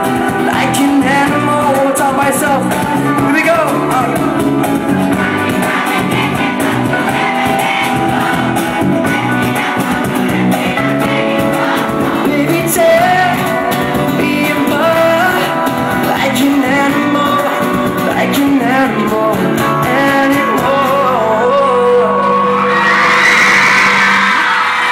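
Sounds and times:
man singing: 0:00.0 - 0:05.2, 0:12.1 - 0:22.8
acoustic guitars: 0:00.0 - 0:24.9.

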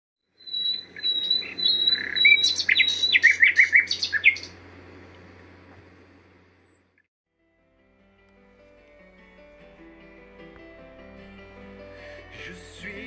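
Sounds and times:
bird singing: 0:00.2 - 0:05.1, 0:06.3 - 0:07.0.

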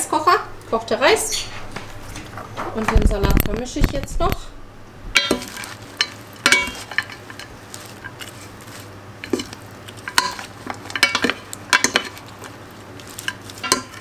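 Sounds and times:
wooden servers clacking on bowl: 0:05.2 - 0:14.0.

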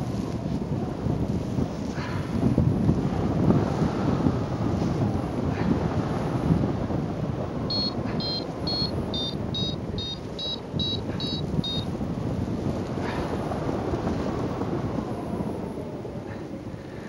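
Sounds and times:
wind rushing over microphone: 0:00.0 - 0:17.0
variometer beeping: 0:07.7 - 0:11.9.

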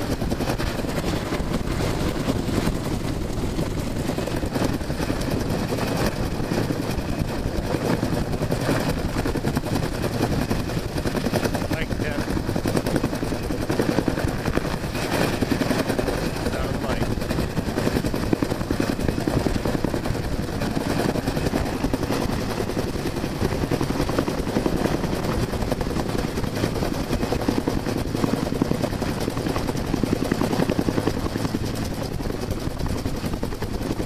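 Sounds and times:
helicopter engine noise: 0:00.0 - 0:34.0
helicopter rotor beat: 0:00.0 - 0:34.0.

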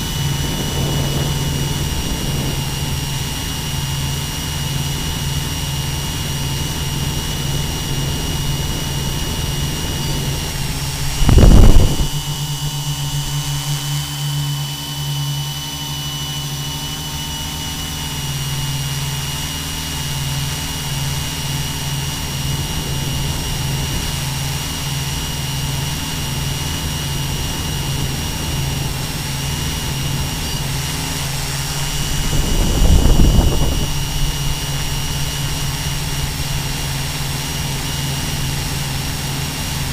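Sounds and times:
low bursts: 0:00.0 - 0:14.6
drone propellers humming: 0:00.0 - 0:39.9
high whine: 0:00.0 - 0:39.9.

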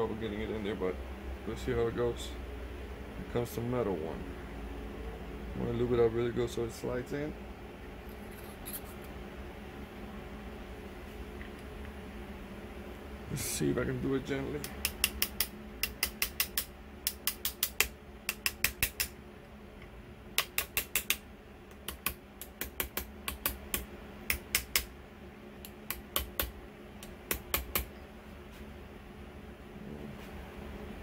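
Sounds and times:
hammer tapping metal tube: 0:14.6 - 0:19.2, 0:20.4 - 0:24.9, 0:25.6 - 0:27.9.

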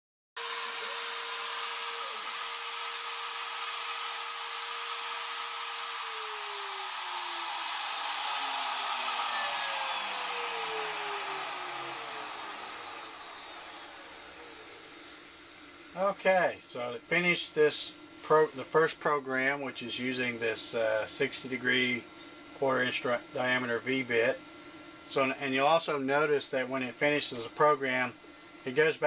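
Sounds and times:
router spindle whining: 0:00.4 - 0:16.2
spindle winding down: 0:00.4 - 0:16.2.

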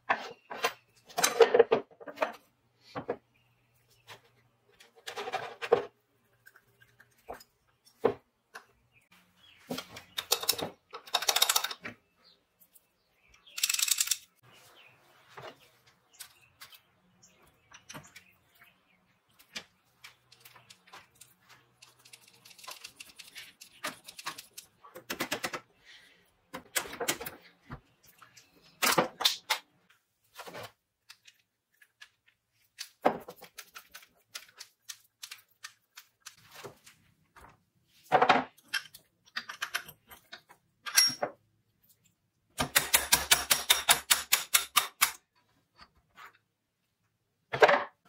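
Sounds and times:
metal drill parts clicking: 0:10.2 - 0:11.8, 0:13.4 - 0:14.3.

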